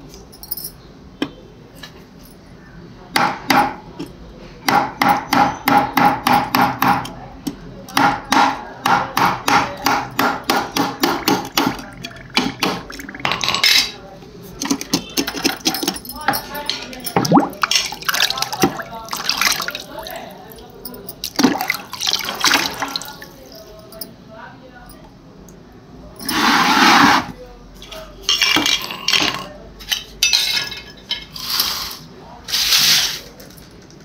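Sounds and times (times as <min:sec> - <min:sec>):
hammer knocking on ceramic: 0:08.0 - 0:13.2.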